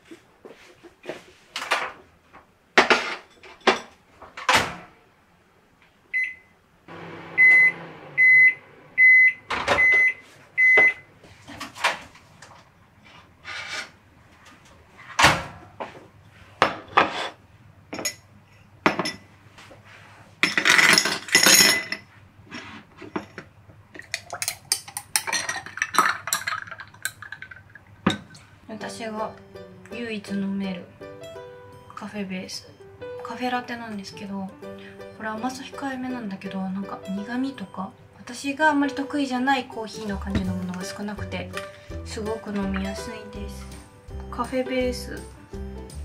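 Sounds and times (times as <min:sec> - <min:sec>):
appliance beeping: 0:06.2 - 0:11.1
low appliance hum: 0:06.2 - 0:46.0.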